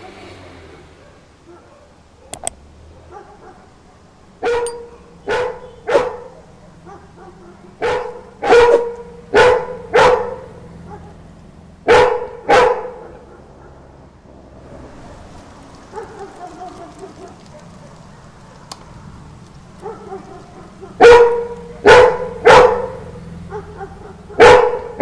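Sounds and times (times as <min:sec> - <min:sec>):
street dogs barking outside: 0:00.5 - 0:25.0
sharp clicks: 0:02.3 - 0:02.6, 0:16.0 - 0:21.7
dog barking deeply: 0:03.0 - 0:11.2, 0:11.8 - 0:14.0, 0:15.9 - 0:18.4, 0:19.8 - 0:25.0.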